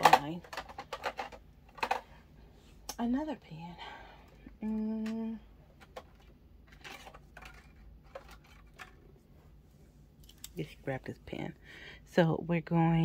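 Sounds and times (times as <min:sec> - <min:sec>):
person humming: 0:04.6 - 0:05.5
small objects clicking and knocking: 0:05.8 - 0:09.0.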